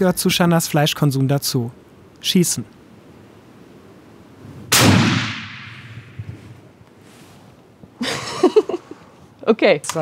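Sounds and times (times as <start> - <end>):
rifle shot with echo: 4.7 - 6.3.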